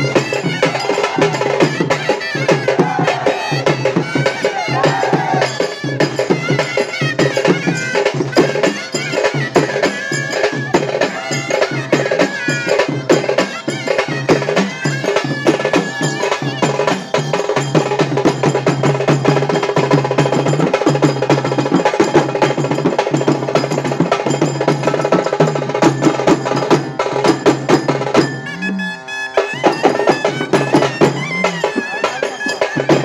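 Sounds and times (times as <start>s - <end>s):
fast dense drumming: 17.7s - 28.5s.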